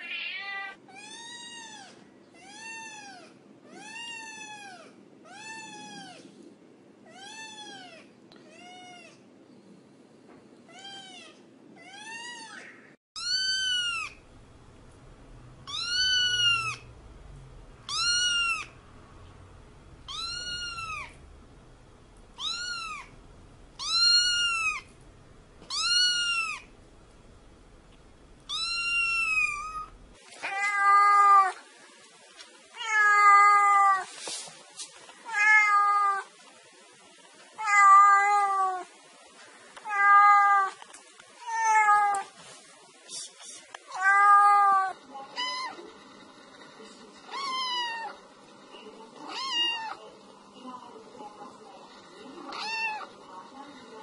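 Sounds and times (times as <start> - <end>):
kitten meowing: 11.9 - 14.2, 15.6 - 16.9, 17.9 - 18.8, 20.1 - 21.2, 22.4 - 23.1, 23.8 - 24.9, 25.7 - 26.7, 28.5 - 31.6, 52.5 - 53.1.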